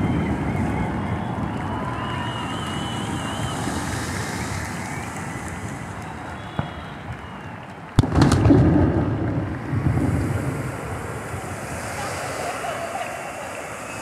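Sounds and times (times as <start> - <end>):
firework crackle: 0.0 - 14.0
surf washing: 0.0 - 14.0
firework bang: 8.0 - 12.7
rumbling echo: 8.0 - 12.8.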